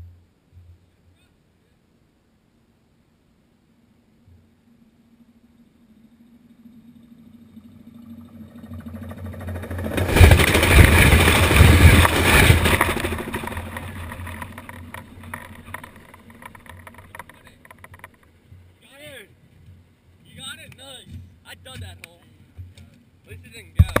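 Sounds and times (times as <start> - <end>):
train passing overhead: 6.6 - 16.2.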